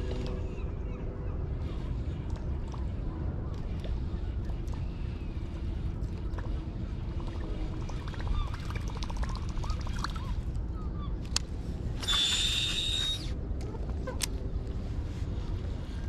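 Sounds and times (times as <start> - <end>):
low rumble: 0.0 - 16.0
fishing reel clicks: 12.0 - 13.3
faint bird calls: 12.0 - 13.4
fishing reel whirring: 12.0 - 13.4.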